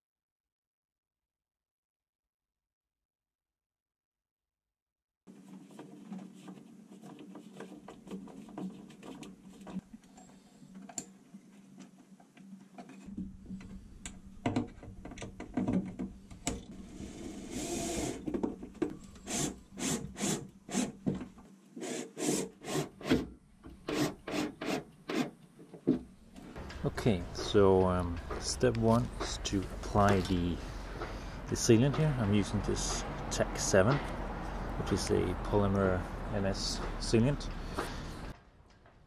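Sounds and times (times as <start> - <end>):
hands and tools on metal: 5.3 - 11.1, 11.7 - 34.8.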